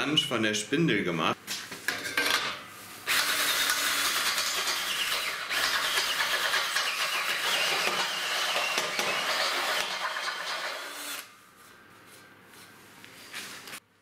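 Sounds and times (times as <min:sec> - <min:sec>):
power drill grinding through steel: 0:03.1 - 0:11.3.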